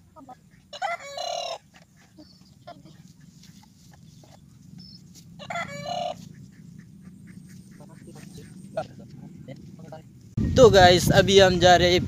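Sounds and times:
chicken calling: 0.2 - 8.7.

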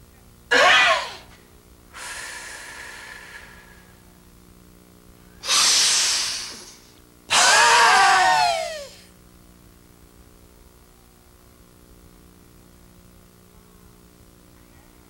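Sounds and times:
woman breathing heavily: 1.9 - 4.0
woman's voiced haaa exhale: 2.0 - 3.9, 5.4 - 9.1.

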